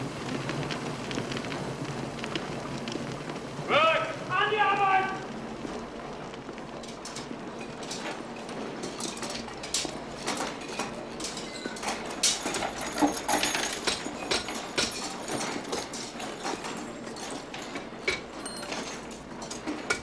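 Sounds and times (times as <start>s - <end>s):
metal parts clanking: 6.8s - 20.0s.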